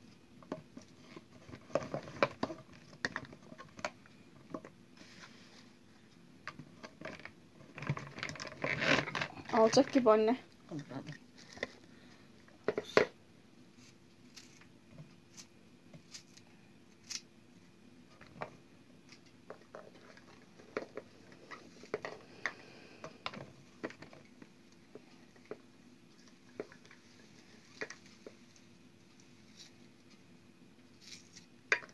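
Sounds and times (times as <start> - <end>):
faint steady hum: 0.0 - 31.9
hands packing peppers into plastic jar: 0.4 - 13.2, 18.1 - 30.2.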